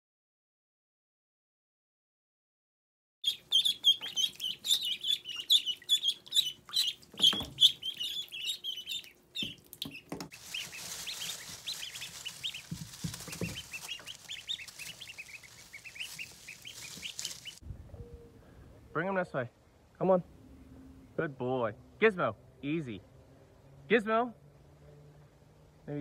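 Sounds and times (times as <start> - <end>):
ducklings peeping: 3.2 - 18.9
dull thumps: 12.5 - 14.2.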